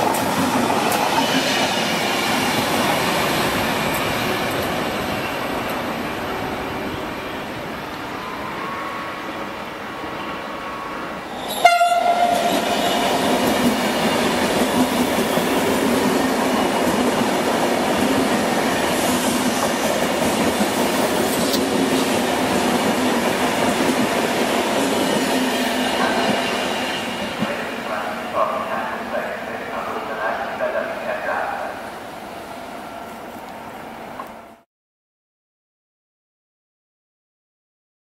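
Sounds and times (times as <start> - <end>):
train wheels rushing on rail: 0.0 - 34.6
train horn note: 11.5 - 13.3.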